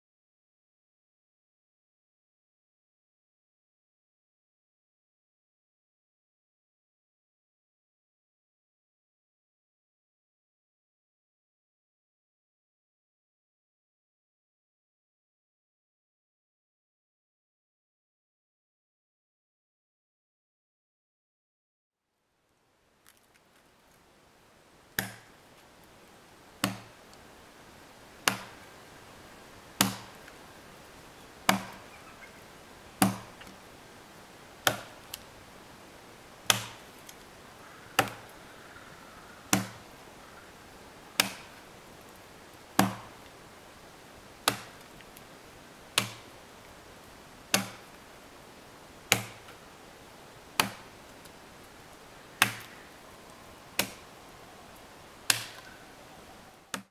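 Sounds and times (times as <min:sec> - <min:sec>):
steady background hiss: 0:22.0 - 0:56.9
tool chopping into log: 0:26.6 - 0:26.9, 0:28.2 - 0:28.6, 0:29.8 - 0:30.2, 0:31.5 - 0:31.8, 0:33.0 - 0:33.3, 0:34.6 - 0:34.9, 0:36.5 - 0:36.8, 0:39.5 - 0:39.8, 0:42.8 - 0:43.1, 0:44.4 - 0:44.8, 0:46.0 - 0:46.3, 0:47.5 - 0:47.8, 0:49.1 - 0:49.4, 0:50.6 - 0:50.8.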